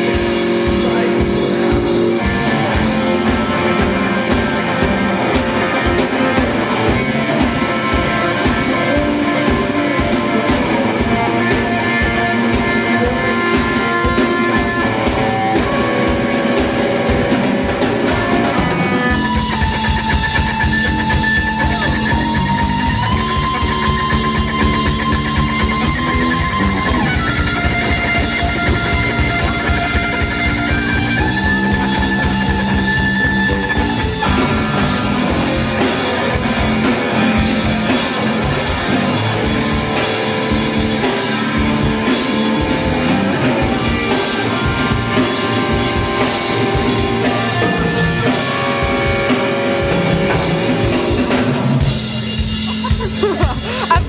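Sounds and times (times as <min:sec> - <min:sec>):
bass guitar: 0:00.0 - 0:54.0
drum kit beat: 0:00.0 - 0:54.0
electric guitar sustained notes: 0:00.0 - 0:54.0.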